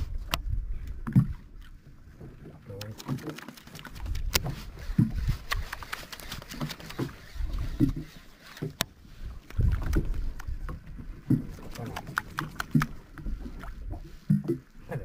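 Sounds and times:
waves slapping against a kayak: 0.0 - 15.0
sharp clicks and knocks: 11.3 - 13.0.

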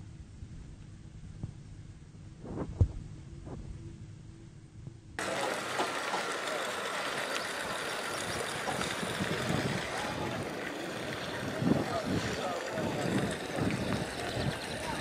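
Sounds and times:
low rumble: 0.0 - 5.2
faint distant voices: 5.2 - 15.0.

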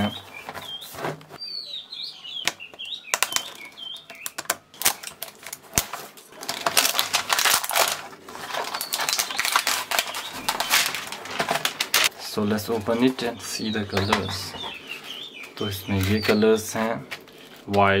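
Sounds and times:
plastic shrink-wrap crinkling: 3.1 - 12.2.

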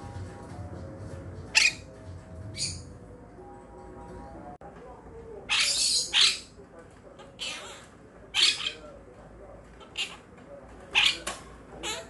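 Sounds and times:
parrots squawking: 1.6 - 1.9, 5.5 - 6.5, 7.2 - 8.8, 9.8 - 10.2, 10.9 - 12.0.

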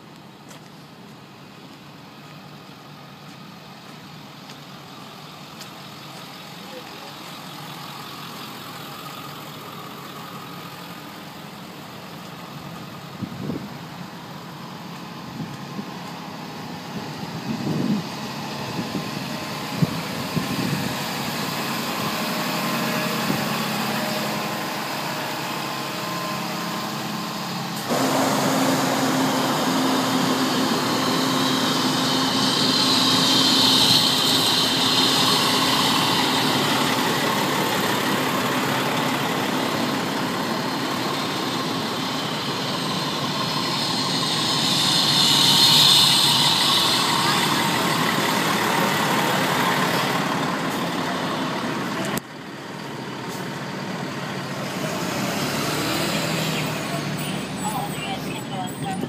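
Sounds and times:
fire engine diesel idling: 0.0 - 59.0
hiss: 27.5 - 39.4, 41.0 - 51.1.

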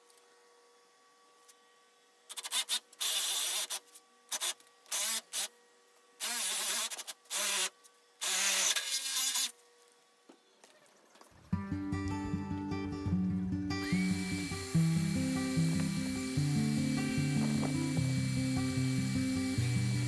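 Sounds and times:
cordless drill boring into wood: 2.3 - 5.6, 6.2 - 9.6, 13.8 - 20.0.

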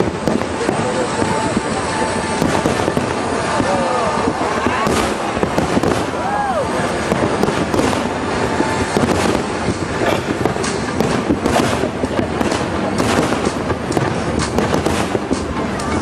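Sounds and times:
fireworks bursting: 0.0 - 16.0.

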